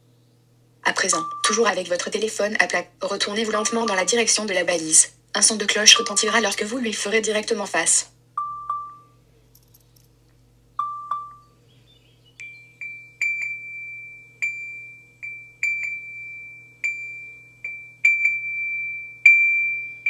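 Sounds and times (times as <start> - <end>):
high ringing pings: 1.1 - 1.8, 3.5 - 4.4, 8.4 - 9.2, 10.8 - 11.6, 12.4 - 20.0
low chime notes: 1.1 - 1.8, 10.8 - 11.6.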